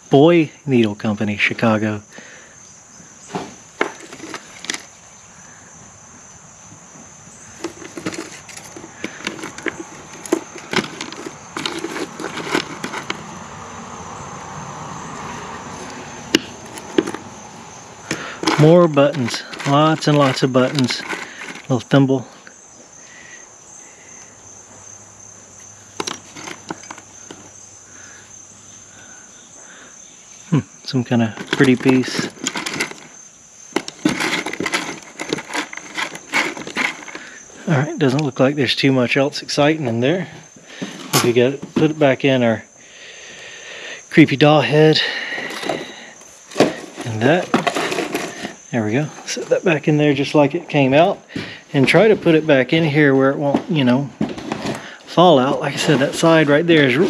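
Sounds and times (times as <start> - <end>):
high insect drone: 0.0 - 57.0
spools and buttons rattling in drawer: 3.8 - 4.9, 7.6 - 13.2, 18.1 - 21.8, 26.0 - 27.5, 31.4 - 37.4, 45.4 - 45.9, 46.5 - 48.6.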